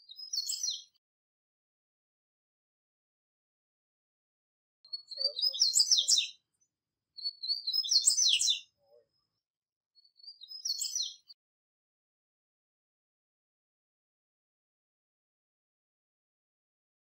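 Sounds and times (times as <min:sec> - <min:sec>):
songbird singing: 0:00.0 - 0:01.0, 0:04.8 - 0:11.4.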